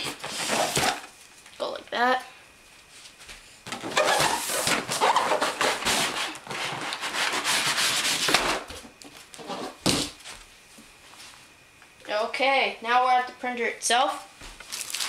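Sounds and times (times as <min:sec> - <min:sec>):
cardboard scraping in a box: 0:00.2 - 0:01.0, 0:03.8 - 0:08.4
sharp cardboard scrape: 0:00.2 - 0:01.0, 0:03.8 - 0:08.7.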